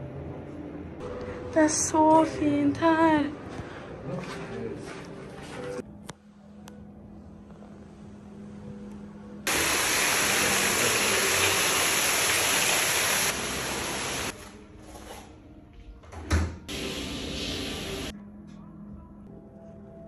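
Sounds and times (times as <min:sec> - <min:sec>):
water rushing into pool: 0:09.5 - 0:14.3.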